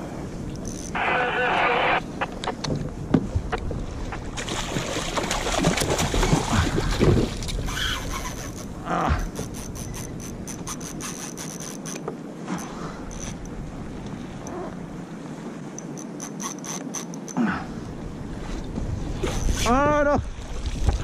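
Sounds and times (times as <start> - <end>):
fishing reel clicking: 0.6 - 1.0, 7.7 - 12.0, 13.1 - 13.5, 15.8 - 17.4
fishing gear rubbing and scraping: 0.6 - 2.0, 7.6 - 13.6, 15.6 - 17.4, 18.4 - 19.8.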